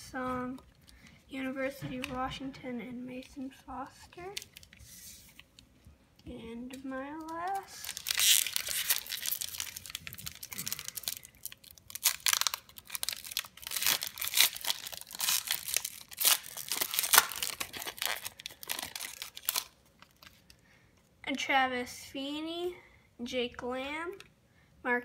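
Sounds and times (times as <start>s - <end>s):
foil wrapper crackling and tearing: 4.3s - 4.8s, 7.2s - 20.6s.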